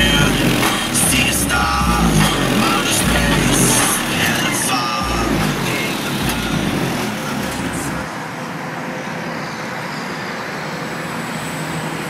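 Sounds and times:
deep subwoofer bass: 0.0s - 8.1s
road traffic noise: 0.0s - 12.0s.

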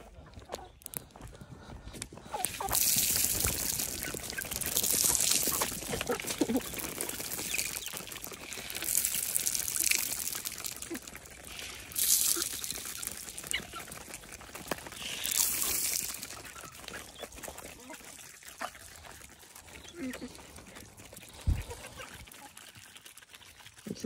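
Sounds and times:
hens clucking: 0.0s - 24.0s
maize kernels scattering on concrete: 2.4s - 17.9s.

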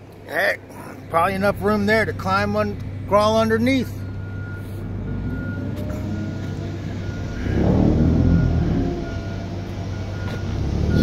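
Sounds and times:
low rumble of passing cars: 0.0s - 11.0s
vehicle passing close: 4.4s - 11.0s.

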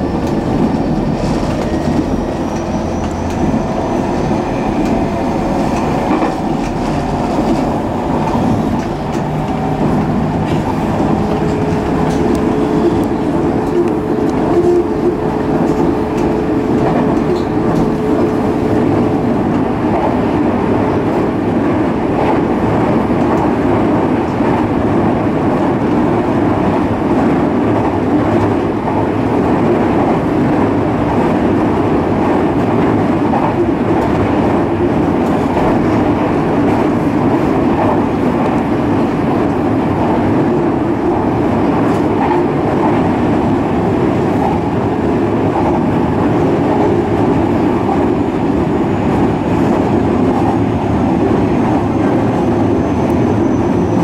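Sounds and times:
steady whine: 0.0s - 19.8s
train wheels rumbling on rail: 0.0s - 54.0s.

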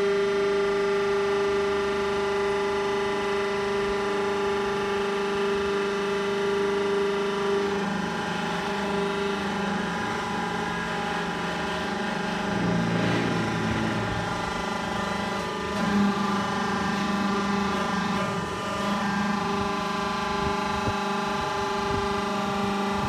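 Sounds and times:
hydraulic baler motor humming: 0.0s - 23.0s.

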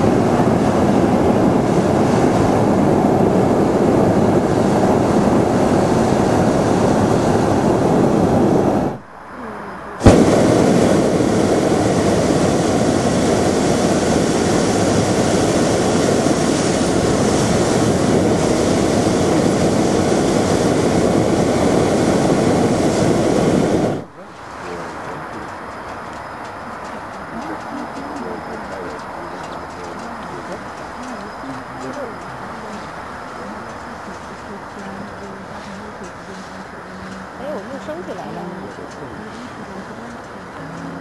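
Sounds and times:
propane burner blast: 0.0s - 9.0s, 10.0s - 40.6s
burner relighting pop: 10.0s - 13.7s.

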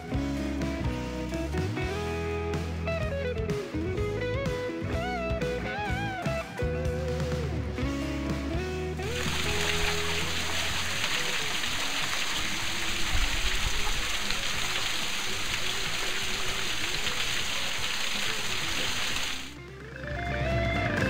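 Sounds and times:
faint music: 0.0s - 21.0s
water splattering onto rocks: 9.1s - 19.5s.

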